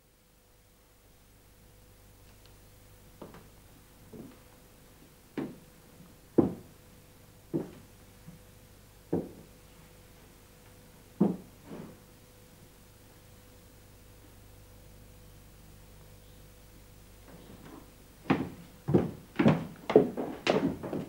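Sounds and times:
footsteps on wooden stairs: 4.1 - 4.4, 5.4 - 5.6, 6.4 - 6.7, 7.5 - 7.9, 9.1 - 9.5, 11.2 - 11.9, 17.3 - 21.0.

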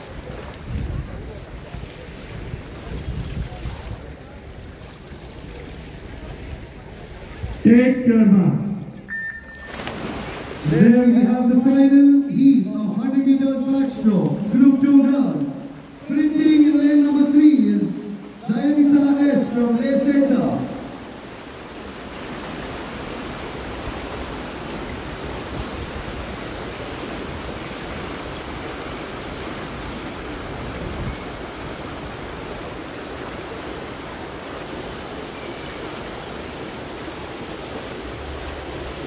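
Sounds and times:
swimmers splashing water: 8.8 - 11.7.

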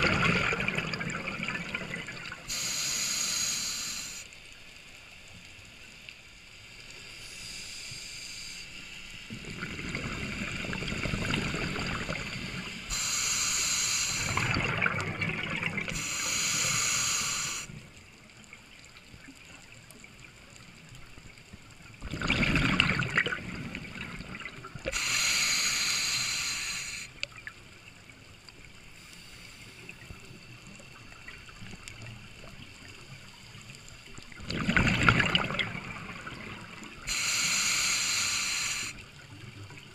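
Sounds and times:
regulator hissing inhalations: 2.4 - 4.3, 7.1 - 9.0, 12.8 - 14.6, 15.9 - 17.8, 24.9 - 27.2, 37.1 - 39.0
bubbling exhalations: 14.2 - 16.1, 22.0 - 25.0, 34.4 - 37.2.

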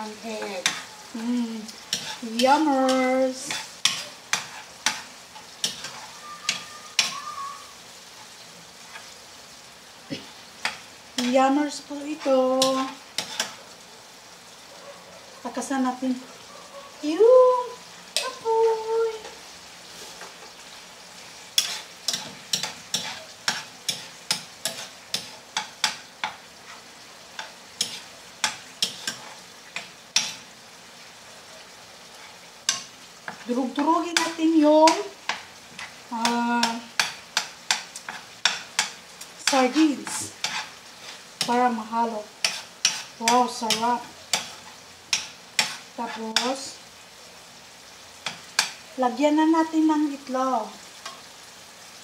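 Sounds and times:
metal spatula scraping a pan: 0.0 - 7.4, 8.8 - 9.2, 10.1 - 13.6, 19.1 - 30.5, 32.0 - 46.7
food sizzling: 0.0 - 52.0.

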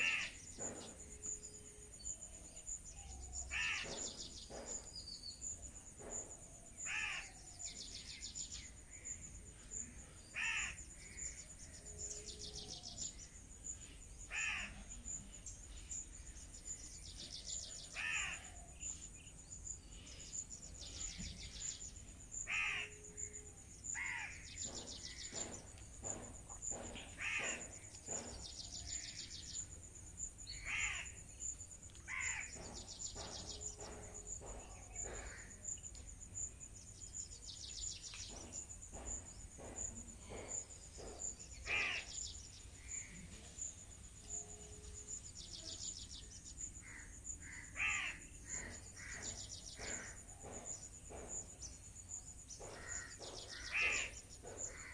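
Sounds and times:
high-pitched insect trill: 0.0 - 54.9
birds giving short harsh calls: 41.6 - 43.1.

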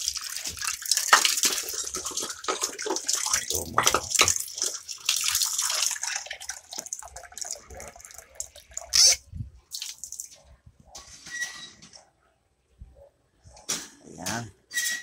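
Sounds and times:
water splashing: 0.0 - 10.4.

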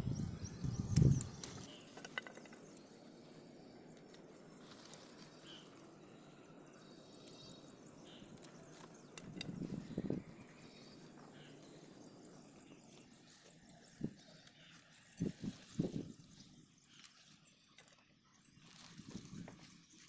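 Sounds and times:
rustle of handling: 1.6 - 6.0, 8.2 - 20.0.

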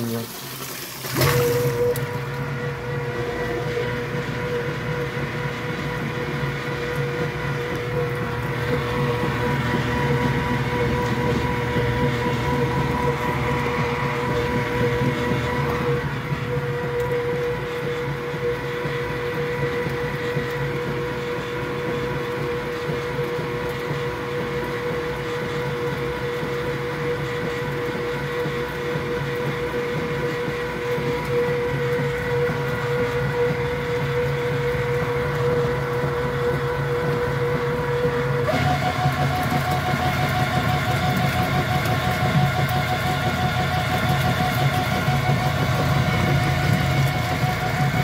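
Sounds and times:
washing machine running: 0.0 - 48.0
constant whining tone: 29.4 - 48.0.

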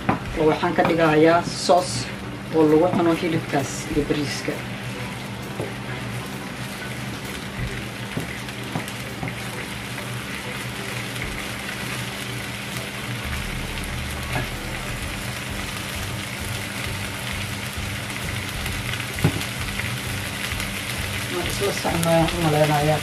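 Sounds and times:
low hum: 10.3 - 21.3.

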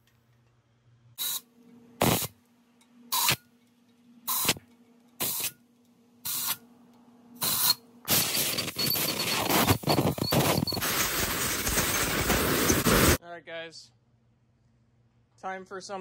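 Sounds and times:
compressed air blasts: 2.0 - 2.4, 4.3 - 4.6, 5.2 - 5.6, 6.3 - 6.6, 7.4 - 13.2.

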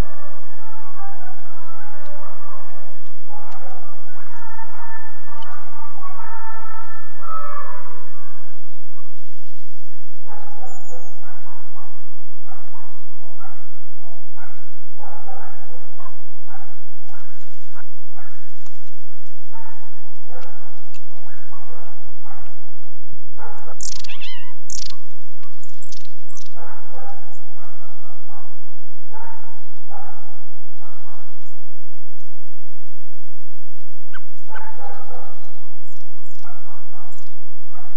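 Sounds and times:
dog barking: 0.0 - 9.4, 10.2 - 18.5, 19.5 - 22.8, 23.4 - 31.5, 34.1 - 37.9
rustling: 17.0 - 19.5.

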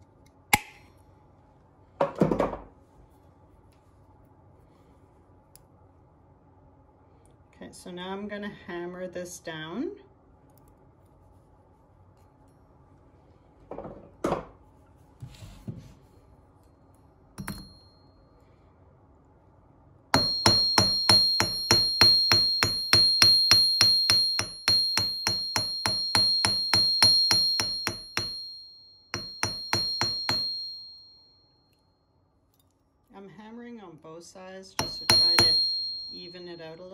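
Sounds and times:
hammer ringing on wire and anvil: 17.4 - 18.1, 20.2 - 31.4, 34.8 - 36.9
wire clinking on anvil: 17.4 - 18.1, 20.2 - 31.8, 34.8 - 36.9.

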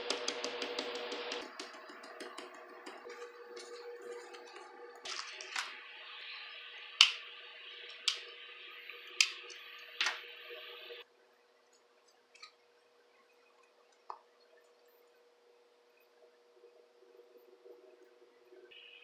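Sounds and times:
paper toys tapping on notebook: 0.0 - 5.7
steady hiss: 0.0 - 11.0.

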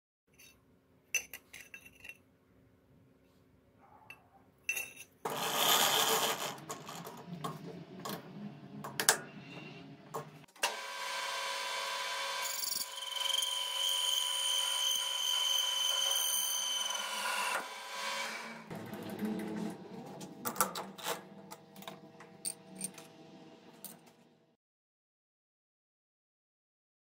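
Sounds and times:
lathe running: 5.3 - 24.5.

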